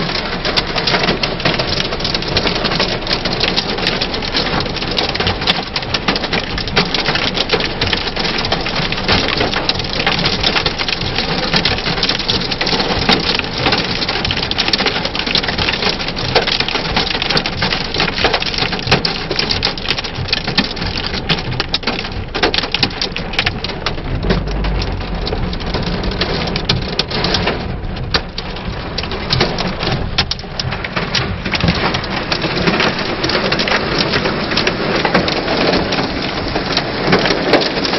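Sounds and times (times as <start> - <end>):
hail and rain on car roof: 0.0 - 37.9
low rumble: 21.5 - 35.9.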